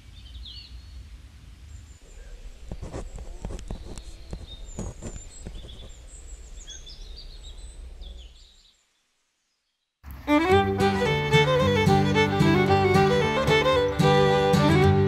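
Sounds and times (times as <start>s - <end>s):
birds chirping: 0.0s - 15.0s
violin music: 10.1s - 15.0s.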